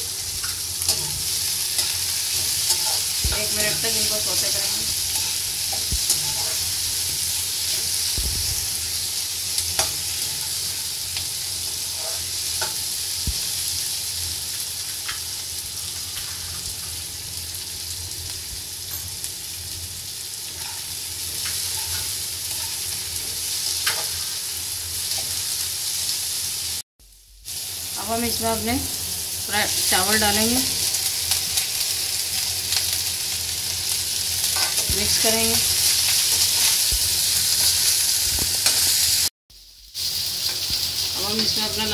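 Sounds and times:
vegetables sizzling in oil: 0.0 - 26.8, 27.4 - 41.9
spatula scraping a pan: 4.5 - 8.0, 11.7 - 12.8, 20.5 - 24.3.

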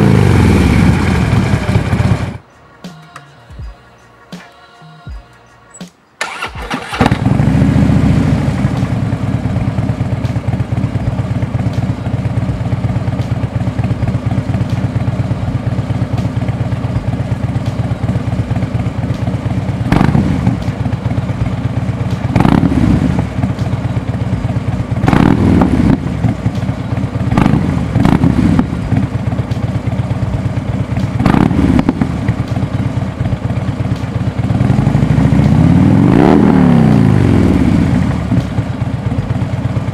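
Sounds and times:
motorcycle engine idling: 0.0 - 2.4, 6.2 - 39.9
motorcycle engine cranking: 6.2 - 7.4.

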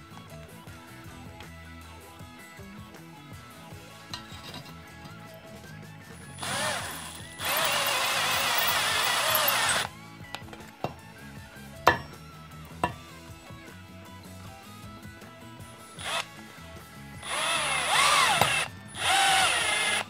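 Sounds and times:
cordless drill driving screw: 6.4 - 9.9, 16.0 - 16.4, 17.2 - 20.0
hammer strike: 11.9 - 12.2.

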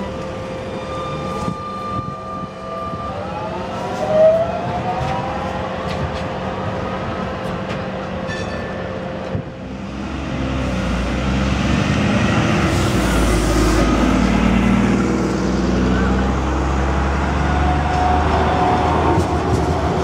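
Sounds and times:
diesel bus engine driving past: 9.6 - 20.0.

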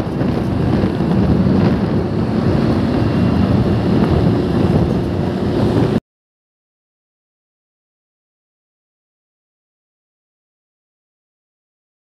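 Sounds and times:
road traffic rumble: 0.0 - 6.0
wind buffeting microphone: 0.0 - 6.0.

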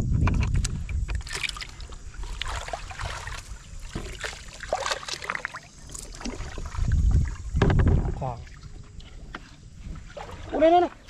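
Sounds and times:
fish splashing in water: 1.2 - 7.6.

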